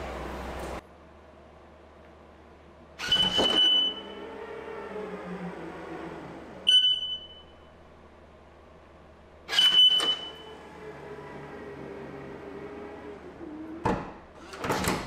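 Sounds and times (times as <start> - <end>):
actuator motor hum: 3.0 - 14.3.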